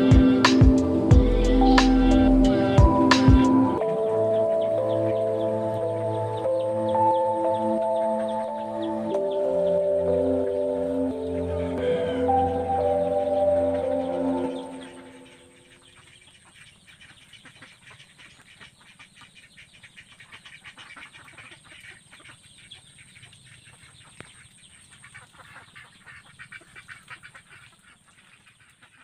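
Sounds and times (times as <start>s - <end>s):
background music: 0.0s - 15.7s
ducks dabbling in mud: 15.8s - 29.0s.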